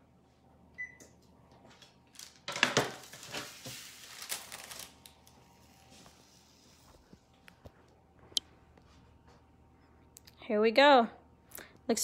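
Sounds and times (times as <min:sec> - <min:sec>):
paper crinkling and rustling: 0:01.7 - 0:06.9.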